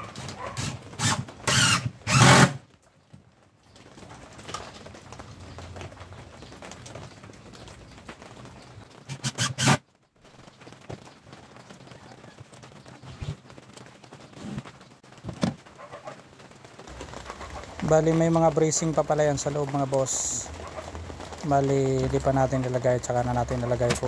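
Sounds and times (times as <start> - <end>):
cordless drill driving screws: 0.6 - 2.6, 9.1 - 9.8.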